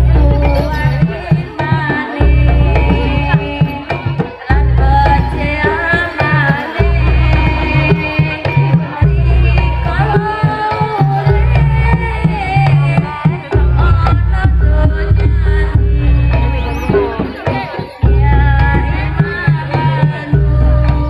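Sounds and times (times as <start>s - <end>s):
deep bass: 0.0s - 1.3s, 13.4s - 17.4s, 18.0s - 19.5s, 20.1s - 21.0s
hand drums: 0.0s - 21.0s.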